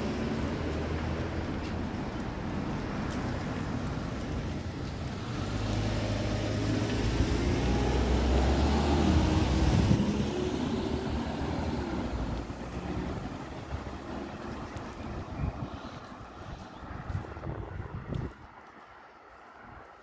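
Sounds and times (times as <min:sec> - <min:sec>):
vehicle engine passing by: 0:00.0 - 0:19.9
street noise: 0:00.0 - 0:20.0.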